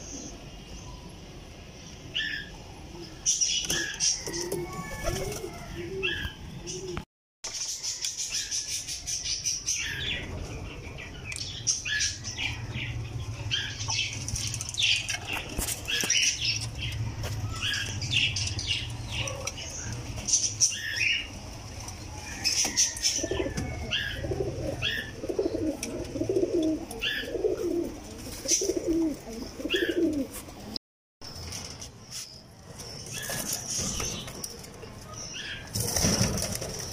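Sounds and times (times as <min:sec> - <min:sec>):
pigeon cooing: 0:03.7 - 0:07.0, 0:23.2 - 0:30.4
pigeon wings flapping: 0:35.7 - 0:36.9.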